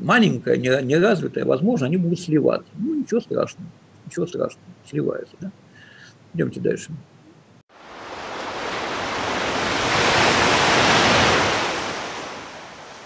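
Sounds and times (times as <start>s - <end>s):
waves breaking on shore: 7.7s - 13.0s.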